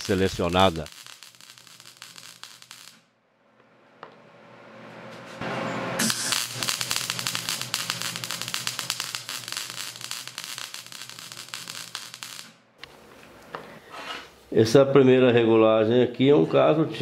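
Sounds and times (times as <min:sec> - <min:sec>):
welding arc crackling and popping: 0:00.0 - 0:03.1, 0:06.0 - 0:12.6.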